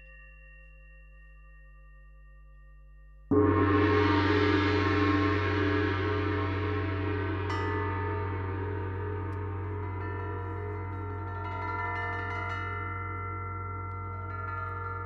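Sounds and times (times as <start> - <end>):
gong struck and ringing: 3.3 - 15.0.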